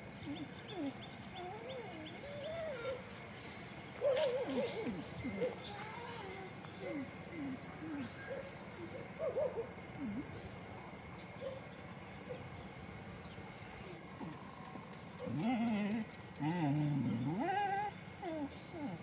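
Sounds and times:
dogs whining: 0.2s - 10.7s, 15.2s - 19.0s.

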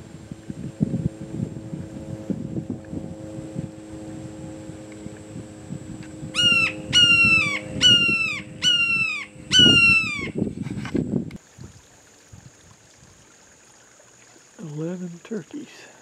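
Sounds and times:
hawk calling harshly: 6.3s - 10.4s.

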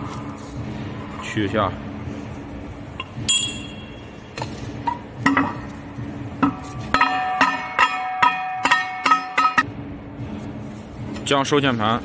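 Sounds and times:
metal clinks and knocks: 3.0s - 9.7s.

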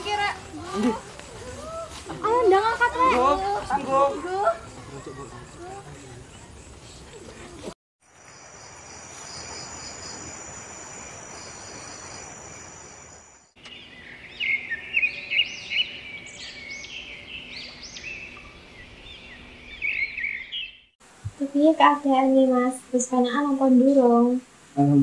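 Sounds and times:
insects trilling: 8.0s - 20.6s
birds chirping: 8.5s - 20.9s.

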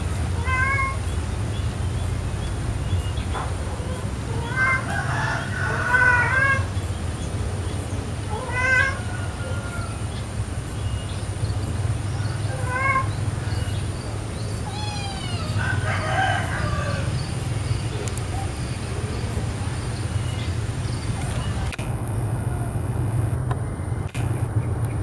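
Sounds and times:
cat meowing: 0.4s - 1.0s, 4.3s - 4.9s, 8.3s - 9.0s, 12.5s - 13.2s, 14.6s - 15.6s
steady low hum: 16.5s - 25.0s.

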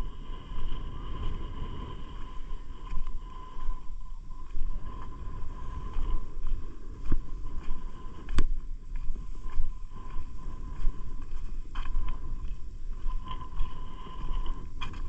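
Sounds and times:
wind buffeting microphone: 0.0s - 15.0s
footsteps on rock: 6.5s - 15.0s.

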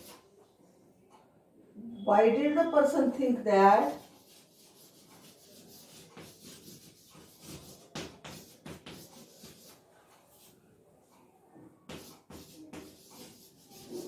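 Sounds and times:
chalk scratching on blackboard: 0.0s - 0.2s, 3.8s - 10.5s, 11.9s - 14.0s.

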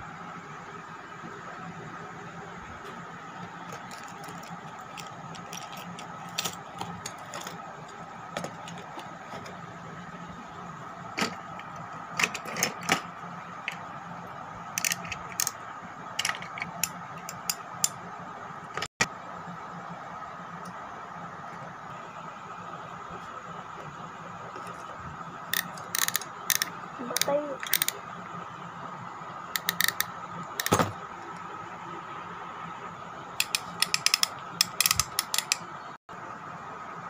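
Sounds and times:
steady background hum: 0.0s - 37.0s
fishing reels clattering together: 25.5s - 28.0s, 29.6s - 30.8s.

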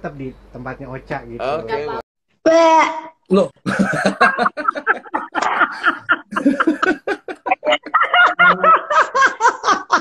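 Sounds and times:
people laughing hard: 3.6s - 10.0s.

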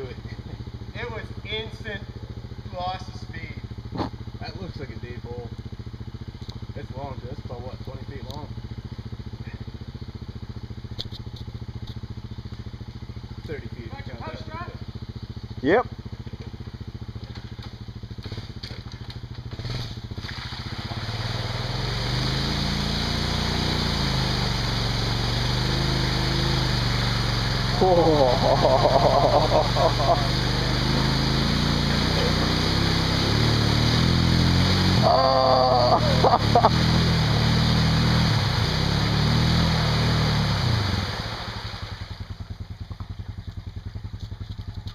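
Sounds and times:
quad engine revving: 0.0s - 5.6s, 13.4s - 44.9s
muddy water splashing: 17.2s - 44.9s.

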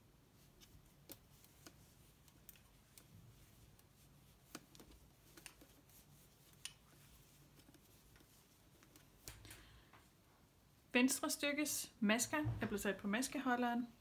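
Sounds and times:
knitting needles clicking: 0.5s - 9.6s.

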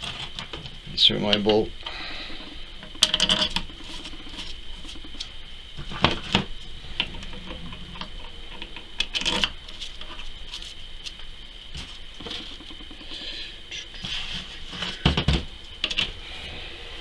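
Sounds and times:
bolts and nuts clinking: 2.4s - 10.2s, 15.8s - 16.1s.

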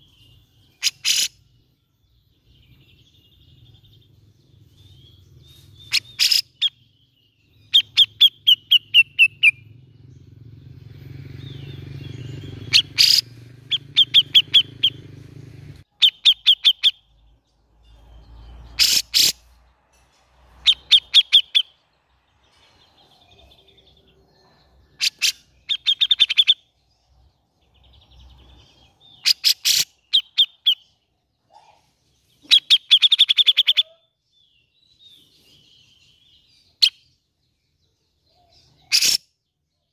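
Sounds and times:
bird chattering calls: 0.7s - 1.4s, 5.7s - 6.9s, 7.7s - 9.7s, 11.4s - 17.1s, 18.7s - 19.6s, 20.6s - 21.8s, 24.9s - 26.7s, 29.0s - 31.8s, 32.4s - 34.1s, 38.6s - 39.4s.

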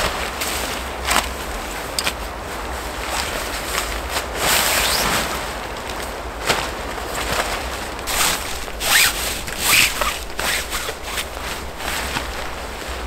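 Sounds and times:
tarp rustling: 0.0s - 13.0s
cord swishing through hands: 7.2s - 13.0s.

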